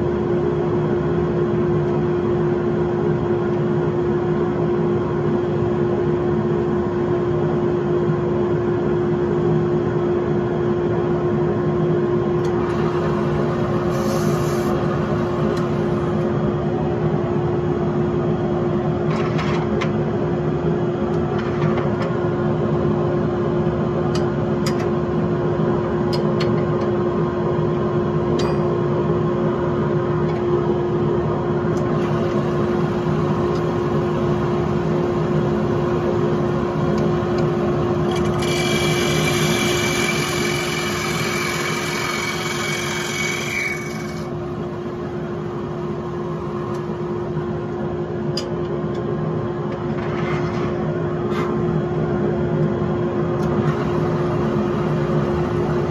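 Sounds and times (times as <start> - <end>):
turning tool scraping whine: 12.5 - 16.2, 38.0 - 44.4
wood lathe motor hum: 38.0 - 44.4.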